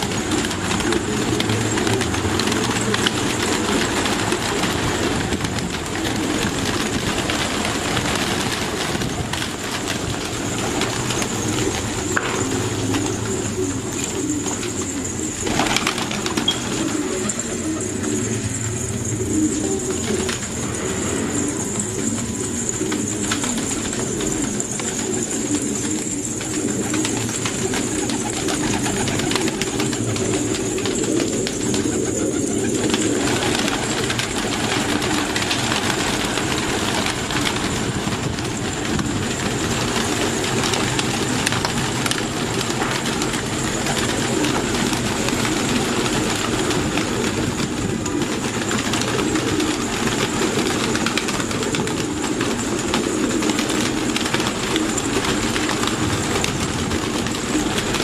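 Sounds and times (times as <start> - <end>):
pigeons cooing: 0.0 - 58.0
wings fluttering: 0.0 - 58.0.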